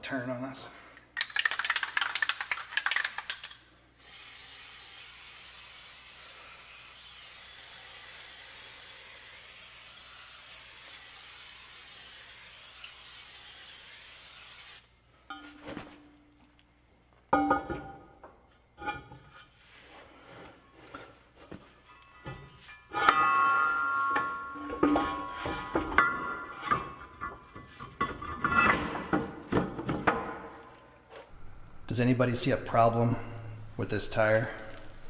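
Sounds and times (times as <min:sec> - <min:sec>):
spray can rattling: 0:01.2 - 0:05.9
aerosol spray hissing: 0:04.0 - 0:14.8.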